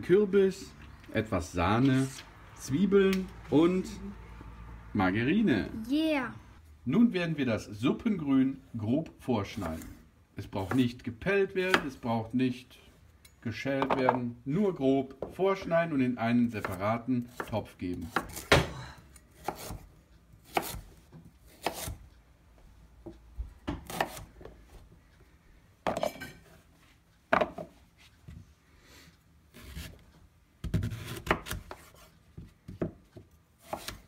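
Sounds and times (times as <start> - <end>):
knife chopping on wooden board: 16.6 - 18.7, 19.4 - 19.8, 20.4 - 20.9, 21.5 - 22.0, 23.7 - 24.3, 30.6 - 34.0.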